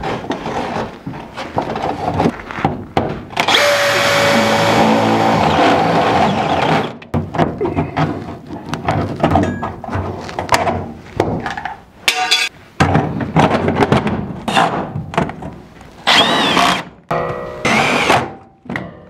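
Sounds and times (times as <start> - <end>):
cordless drill bursts: 3.5 - 6.9, 16.1 - 16.8
sheet metal knocks and clatter: 7.1 - 15.5.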